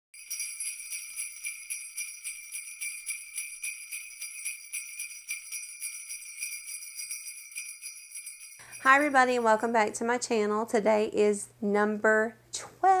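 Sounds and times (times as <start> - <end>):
sleigh bells jingling: 0.2 - 9.8.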